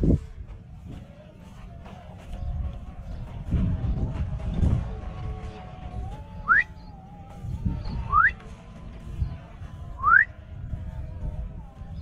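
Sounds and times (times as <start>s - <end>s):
walking on a path: 0.0s - 12.0s
rising whistles: 6.0s - 8.4s, 10.0s - 10.4s.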